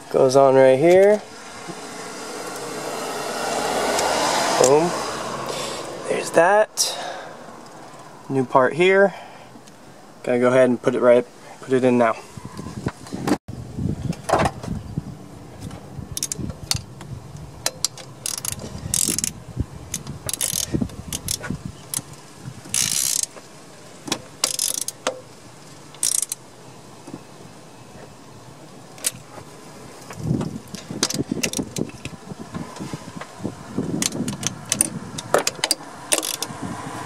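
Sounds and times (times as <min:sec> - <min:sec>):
socket ratchet clicking: 0:16.2 - 0:16.9, 0:17.6 - 0:22.1, 0:22.7 - 0:23.4, 0:24.4 - 0:25.2, 0:26.0 - 0:26.4, 0:34.0 - 0:36.5.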